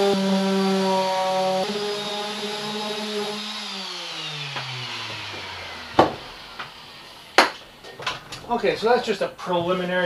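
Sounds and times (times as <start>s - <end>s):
power tool motor running down: 0.0s - 7.7s
sharp knock: 6.0s - 6.7s.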